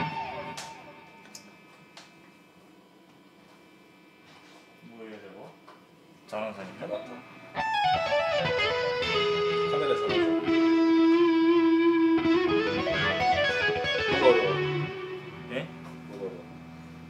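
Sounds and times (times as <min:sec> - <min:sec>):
electric guitar solo: 0:00.0 - 0:01.3, 0:07.5 - 0:15.8.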